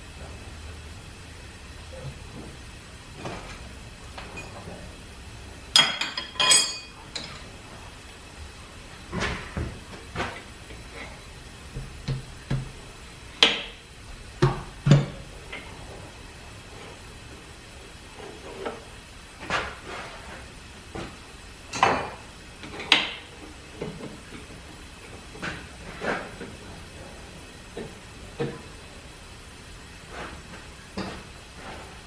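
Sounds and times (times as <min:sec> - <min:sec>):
metallic clinks of tools: 0:05.8 - 0:07.0.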